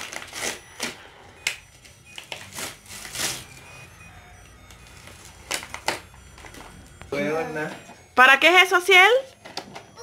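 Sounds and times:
wrapping paper crinkling: 0:00.0 - 0:03.6, 0:04.7 - 0:06.8.

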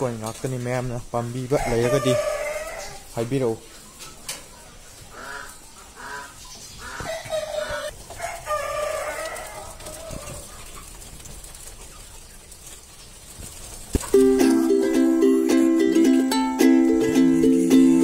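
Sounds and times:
quail calling: 0:05.1 - 0:07.9.

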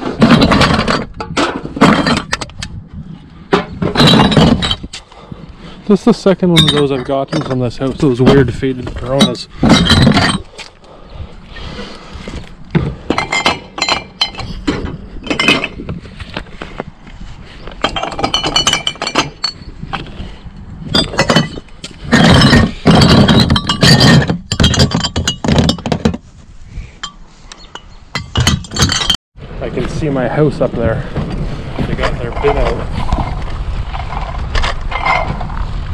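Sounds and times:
glass bottles clinking: 0:03.6 - 0:04.9, 0:06.5 - 0:08.4, 0:09.1 - 0:10.5, 0:13.0 - 0:15.9, 0:17.8 - 0:19.7, 0:20.9 - 0:26.2, 0:27.0 - 0:29.2.

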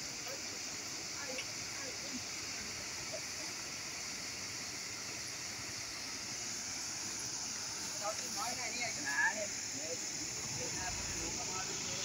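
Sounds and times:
river rushing: 0:04.5 - 0:12.0.

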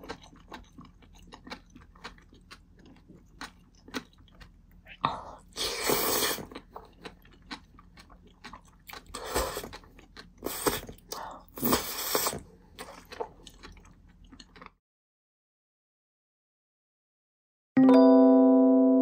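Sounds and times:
wet chewing: 0:00.0 - 0:14.8
loud slurping of noodles: 0:05.6 - 0:06.5, 0:10.4 - 0:10.9, 0:11.6 - 0:12.4.

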